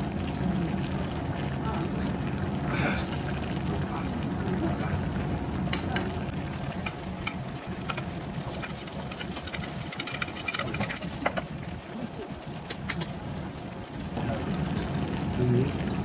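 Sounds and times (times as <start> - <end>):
utensils scraping metal pot: 6.4 - 11.5.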